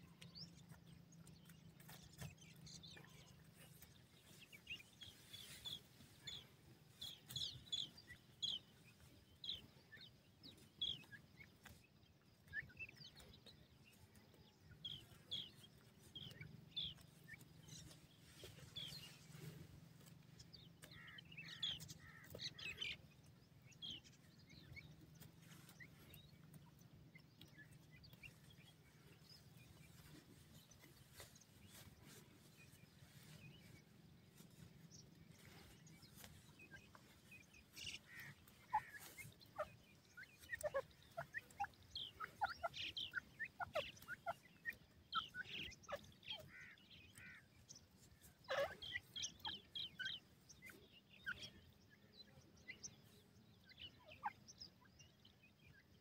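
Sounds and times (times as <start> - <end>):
chicks peeping: 23.8 - 51.8.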